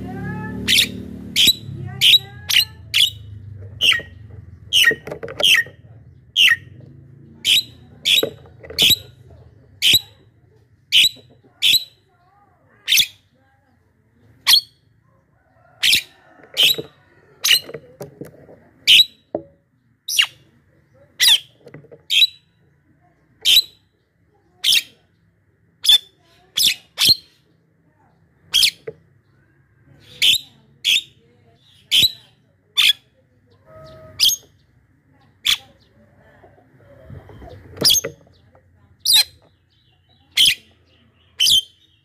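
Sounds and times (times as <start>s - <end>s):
bird sharp high calls: 0.6s - 6.8s, 30.0s - 34.6s.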